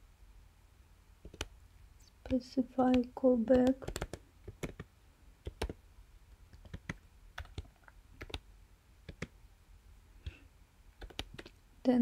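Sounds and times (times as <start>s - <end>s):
typing on computer keyboard: 1.2s - 1.5s, 2.3s - 5.8s, 6.5s - 8.4s, 9.1s - 9.3s, 11.0s - 11.6s.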